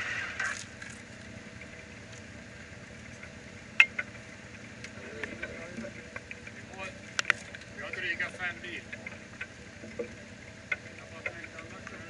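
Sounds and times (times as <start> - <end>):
light ticks: 0.5 - 12.0.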